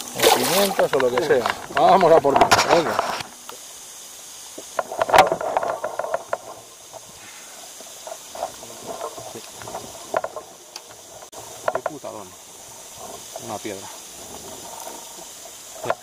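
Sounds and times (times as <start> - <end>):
water lapping: 0.0 - 2.2, 12.6 - 16.0
steady hiss: 0.0 - 16.0.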